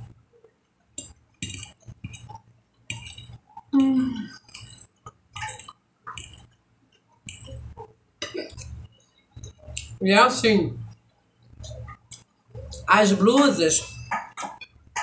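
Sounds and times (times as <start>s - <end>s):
wet chewing: 1.0s - 7.8s
hum-like vocal sound: 3.8s - 4.3s.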